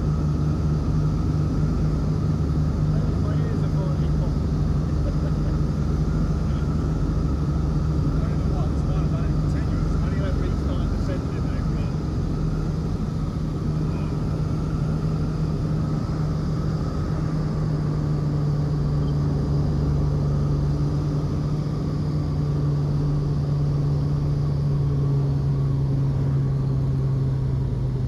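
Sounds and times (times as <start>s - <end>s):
aircraft engines droning in cabin: 0.0s - 28.0s.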